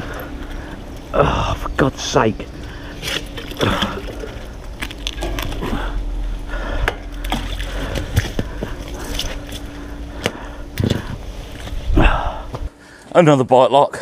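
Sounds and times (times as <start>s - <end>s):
water sloshing: 2.6s - 10.0s.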